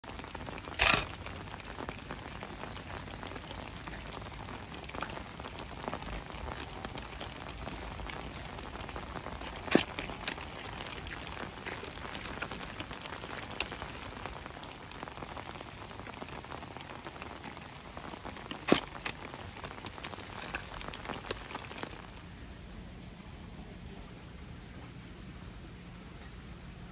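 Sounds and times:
steady rain falling: 0.0 - 26.9
sharp clicks: 0.7 - 1.2, 9.6 - 10.6, 18.4 - 19.4.

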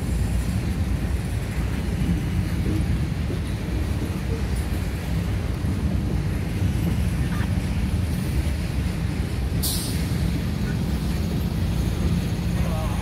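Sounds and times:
diesel locomotive engine rumbling: 0.0 - 13.0
short hiss: 9.6 - 10.1.

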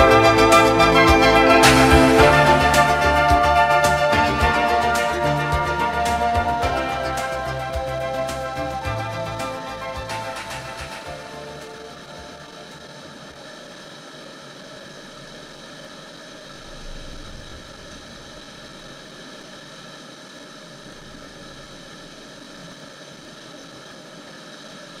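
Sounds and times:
whitewater rushing: 0.0 - 23.4.

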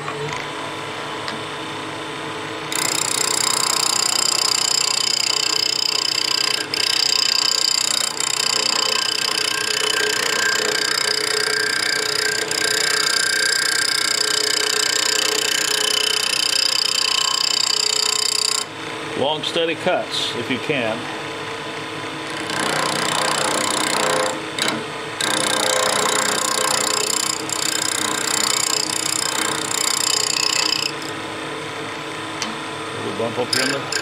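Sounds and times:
wood lathe running: 2.7 - 18.7, 22.3 - 31.2, 33.1 - 34.0.

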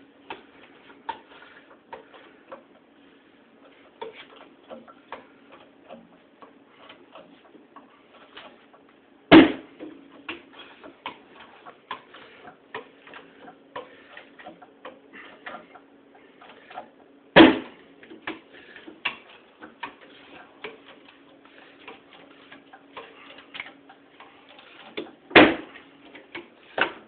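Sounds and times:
loud sharp cracks: 17.4 - 17.7.

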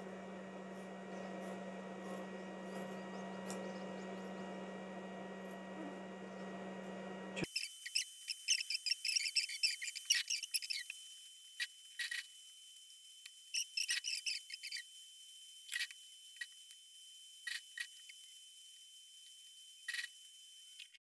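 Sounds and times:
electrical room hum: 0.0 - 10.8
small birds chirping: 1.1 - 6.6.

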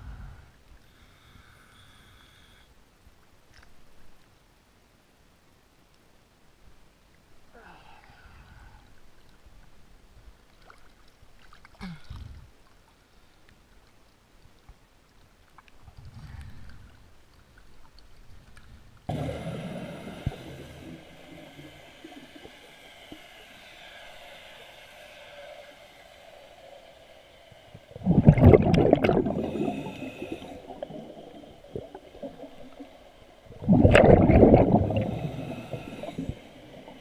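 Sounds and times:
water lapping and sloshing: 10.4 - 23.6, 27.5 - 37.0
muffled underwater sound: 19.1 - 22.8, 28.0 - 37.0.

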